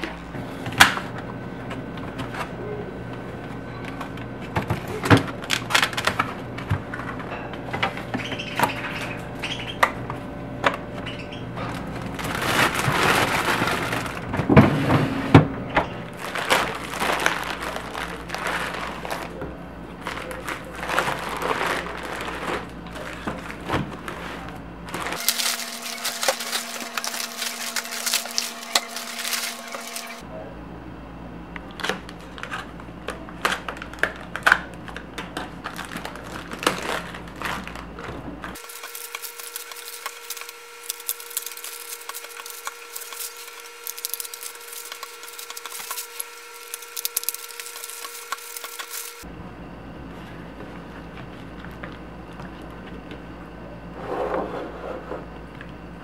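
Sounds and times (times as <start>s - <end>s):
plastic shrink-wrap crinkling: 11.6s - 14.4s, 16.1s - 19.4s, 20.0s - 30.2s, 33.4s - 49.3s.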